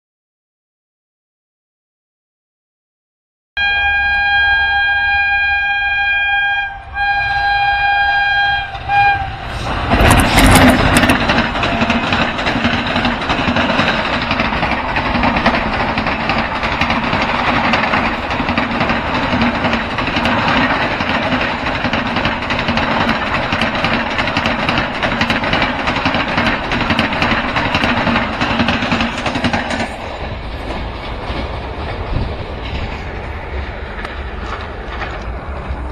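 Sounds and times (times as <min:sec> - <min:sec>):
locomotive horn blasts: 0:03.6 - 0:09.7
train wheels rolling on rails: 0:04.0 - 0:35.9.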